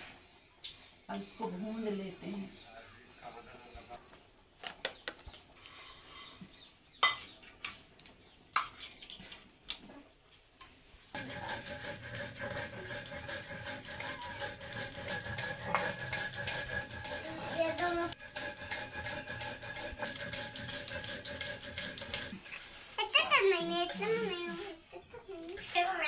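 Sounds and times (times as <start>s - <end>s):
metal cup and tongs clinking: 11.2s - 22.4s
stone grinding seeds on slab: 11.2s - 22.6s.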